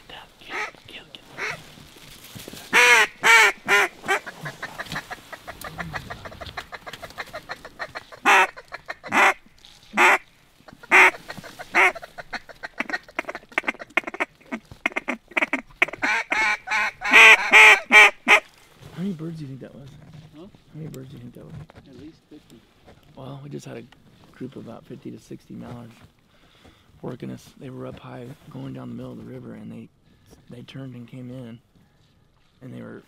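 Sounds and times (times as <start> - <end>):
duck call quacking: 1.4 - 1.6, 2.7 - 9.4, 10.0 - 18.5.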